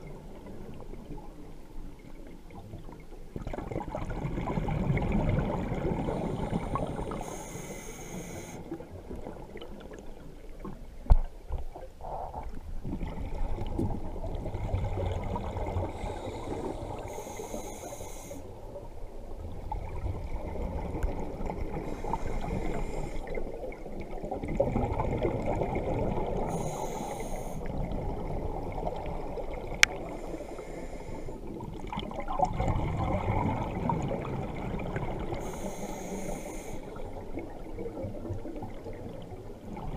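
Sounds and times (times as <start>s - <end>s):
regulator hiss: 7.0s - 8.7s, 16.0s - 18.5s, 26.5s - 27.7s, 35.4s - 36.9s.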